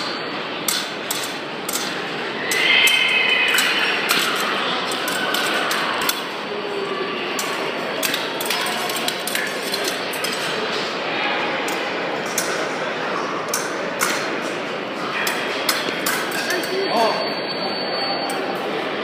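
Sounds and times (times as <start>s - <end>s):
fencing blades clashing: 0.0s - 6.4s, 7.3s - 10.9s, 11.6s - 12.8s, 13.4s - 17.2s
murmur of crowded hall: 0.0s - 19.0s.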